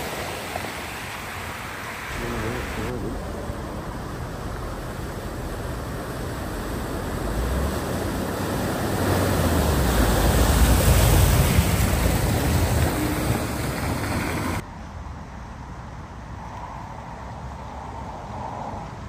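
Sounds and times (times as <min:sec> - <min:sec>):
car splashing through floodwater: 0:00.0 - 0:14.6.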